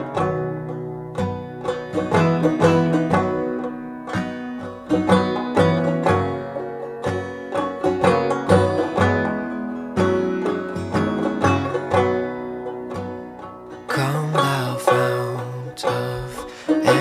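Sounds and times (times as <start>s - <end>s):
acoustic strings picking notes: 0.0s - 17.0s.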